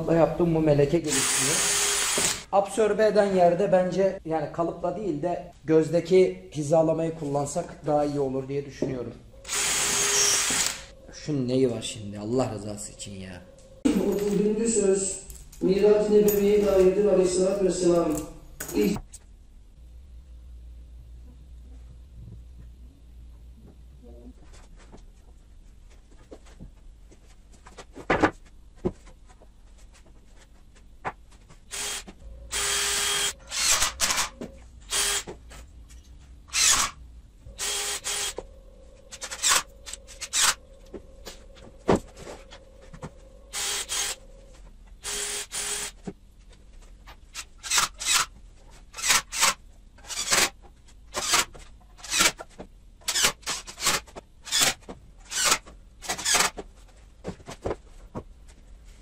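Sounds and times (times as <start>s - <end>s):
cordless drill motor whine: 1.1s - 2.5s, 9.4s - 11.0s, 31.7s - 35.3s, 37.5s - 40.8s, 43.5s - 44.3s, 45.0s - 45.9s.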